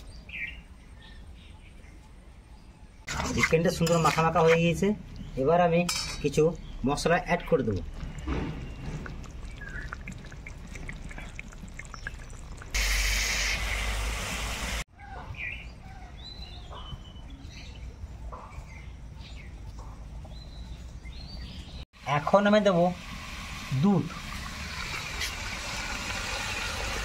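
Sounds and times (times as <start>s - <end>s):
birds chirping: 0.0s - 12.8s, 14.9s - 21.9s
chicken frying: 8.0s - 12.8s, 23.0s - 27.0s
loud sizzling hiss: 12.8s - 14.8s.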